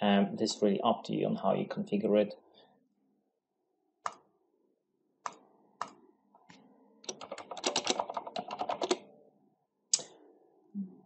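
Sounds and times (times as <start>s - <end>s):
computer mouse clicking: 5.2s - 9.0s
typing on computer keyboard: 7.0s - 9.0s.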